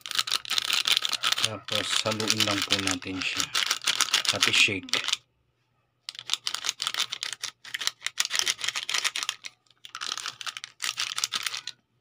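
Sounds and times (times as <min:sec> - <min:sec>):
foil sachet shaken and crinkled: 0:00.0 - 0:05.1, 0:06.3 - 0:11.7.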